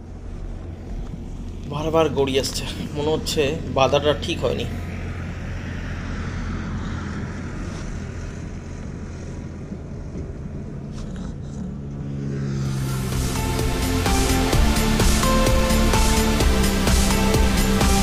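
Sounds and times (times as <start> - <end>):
low steady rumble: 0.0 - 18.0
background music: 12.7 - 18.0.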